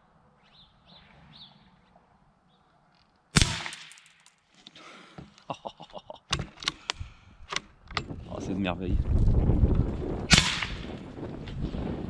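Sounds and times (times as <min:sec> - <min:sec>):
suppressed rifle shot: 0:03.4 - 0:04.0, 0:10.3 - 0:10.9.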